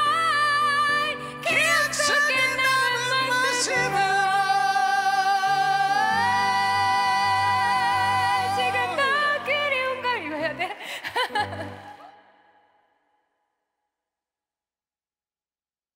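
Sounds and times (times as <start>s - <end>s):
person singing with vibrato: 0.0s - 12.6s.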